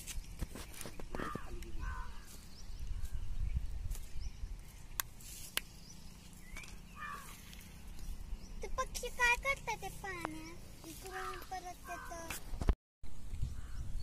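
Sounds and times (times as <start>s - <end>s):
wind rumble on microphone: 0.2s - 4.9s, 12.5s - 14.0s
short bird calls: 6.4s - 7.9s.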